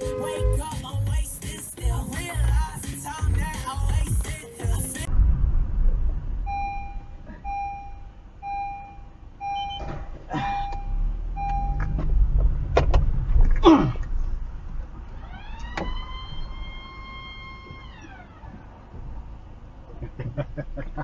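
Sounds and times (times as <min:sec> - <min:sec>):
car rumble: 0:00.0 - 0:21.0
electronic beeps: 0:06.5 - 0:12.0.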